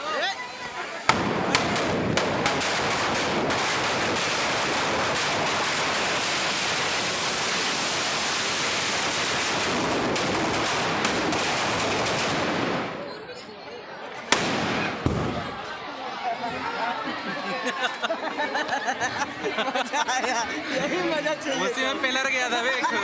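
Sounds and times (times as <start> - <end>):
firecrackers banging and crackling: 0.1 - 13.1, 14.2 - 15.8.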